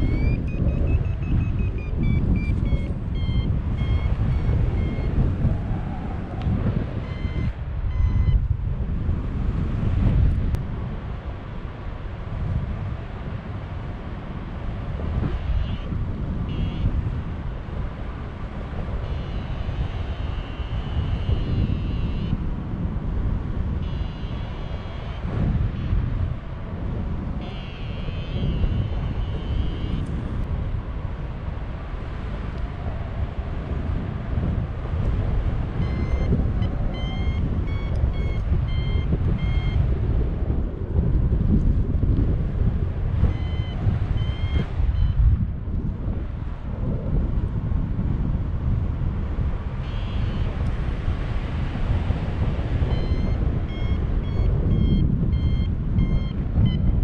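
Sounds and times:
variometer beeping: 0.0 - 5.4, 6.9 - 8.5, 15.2 - 17.2, 19.0 - 22.4, 23.7 - 26.3, 27.4 - 30.4, 35.7 - 40.0, 43.2 - 45.4, 49.8 - 50.7, 52.4 - 57.0
wind rushing over microphone: 0.0 - 57.0.

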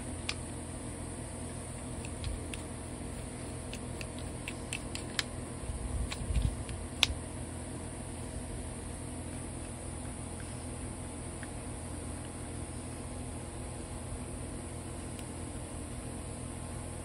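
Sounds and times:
light clicks and taps: 1.8 - 5.3.

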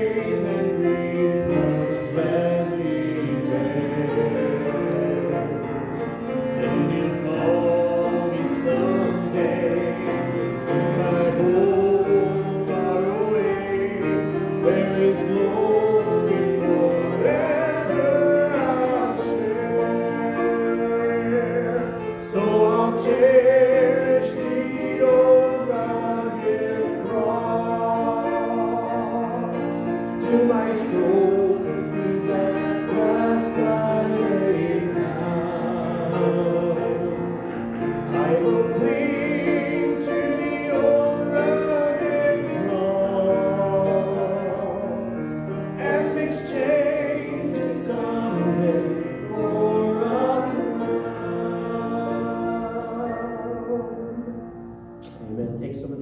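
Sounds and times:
congregation singing a hymn: 0.0 - 56.0.

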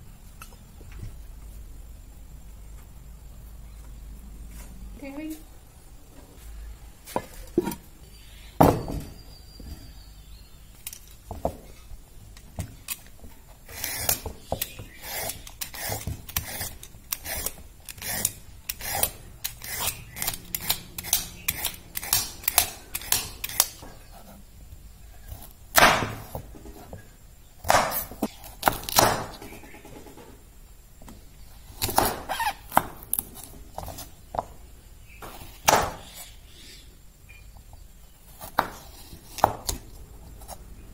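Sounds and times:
vegetable peeler scraping carrot: 13.6 - 24.4.

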